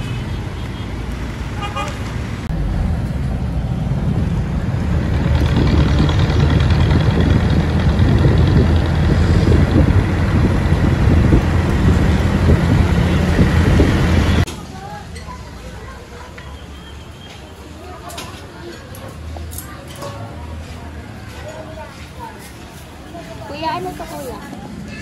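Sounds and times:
road noise: 0.0s - 25.0s
vehicle engine rumble: 0.0s - 25.0s
wind buffeting microphone: 2.5s - 14.5s.

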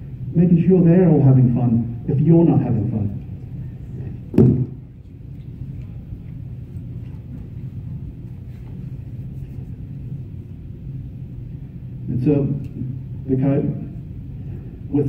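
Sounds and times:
low room rumble: 0.0s - 15.0s
short thump: 4.3s - 4.8s.

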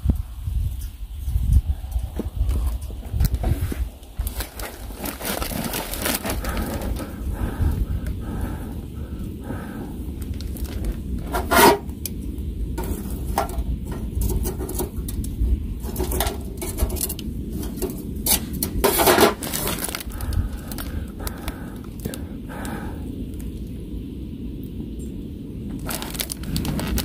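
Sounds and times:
metal tongs clinking on fire pit: 12.8s - 19.4s.

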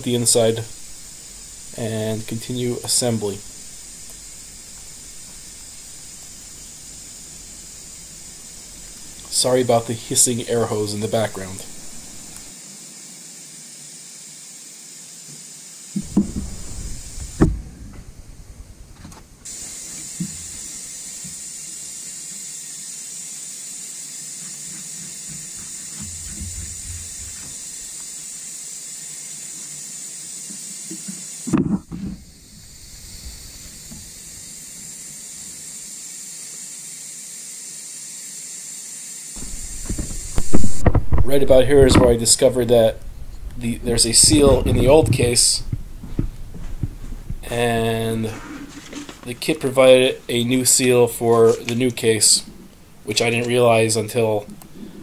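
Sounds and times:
compressed air hose hissing: 0.0s - 55.0s
knocks: 16.0s - 18.1s.

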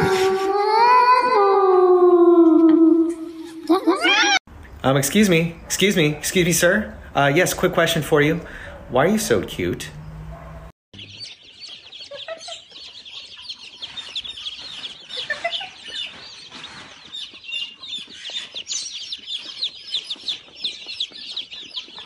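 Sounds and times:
chicks peeping: 4.6s - 22.0s.

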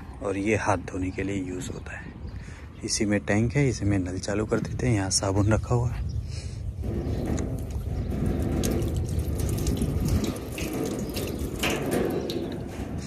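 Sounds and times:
tap water splashing in metal trough: 6.8s - 13.0s.

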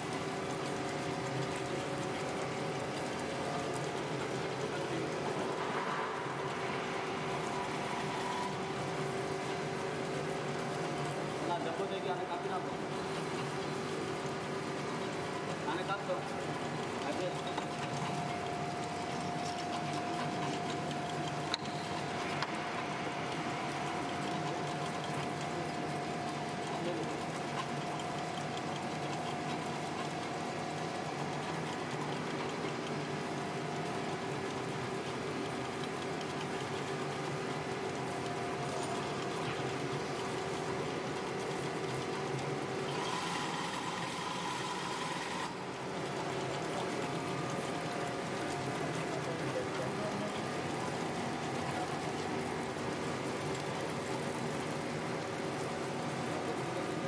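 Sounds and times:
winding machine whine and clatter: 0.0s - 57.0s.

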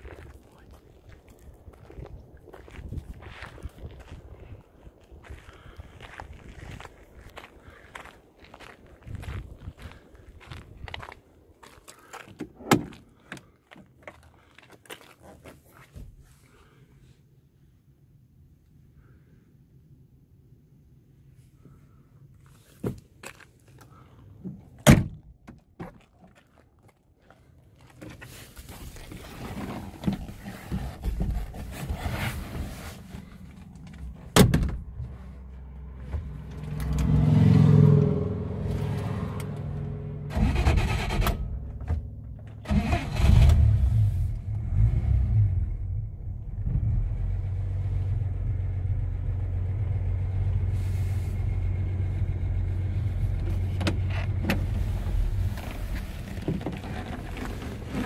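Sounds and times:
car engine starting and revving: 35.6s - 41.8s, 42.5s - 56.4s.

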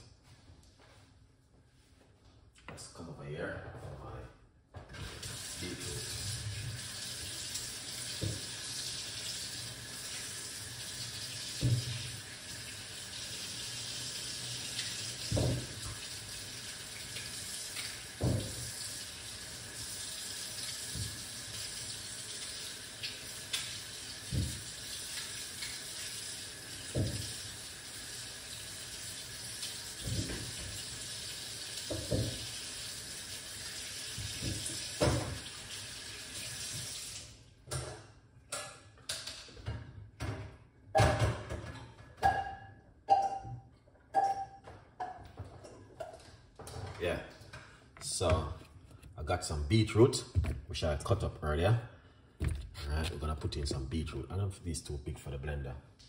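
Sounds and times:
water running from tap: 5.0s - 37.4s.

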